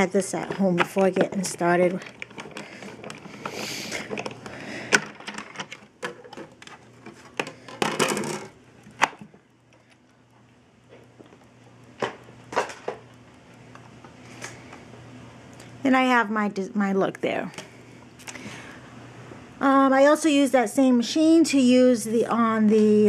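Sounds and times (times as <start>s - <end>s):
plastic plates clicking and knocking: 0.3s - 9.3s.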